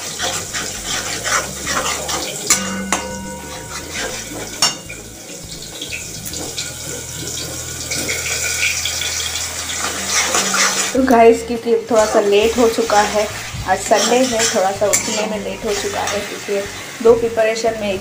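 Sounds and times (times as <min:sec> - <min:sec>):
metal spatula scraping frying paste: 0:00.0 - 0:17.1
spatula clinking against pan: 0:00.2 - 0:05.1, 0:14.0 - 0:16.4.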